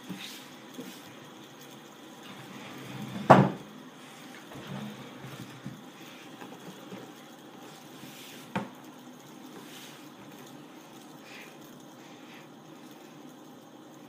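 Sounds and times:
faint room noise: 0:00.0 - 0:14.0.

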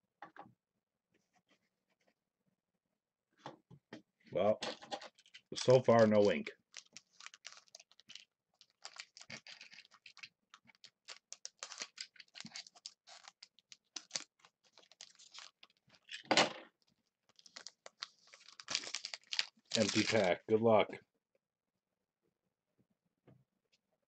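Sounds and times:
wrapper crinkling: 0:05.0 - 0:16.2, 0:17.3 - 0:20.4
wrapper rustle: 0:05.0 - 0:16.2, 0:17.3 - 0:20.4.

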